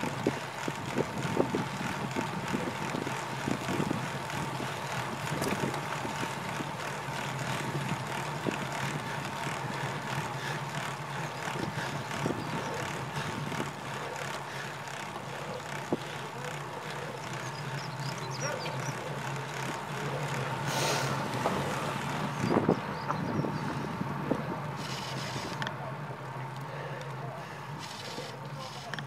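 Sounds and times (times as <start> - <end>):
wind rushing over microphone: 0.0 - 6.8, 21.3 - 25.5
tyre and road noise: 0.0 - 29.0.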